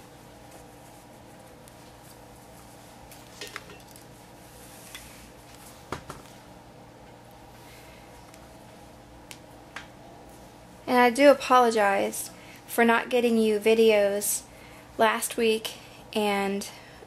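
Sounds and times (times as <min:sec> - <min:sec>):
fabric handling noise: 0:00.0 - 0:06.5
steady low hum: 0:00.0 - 0:17.0.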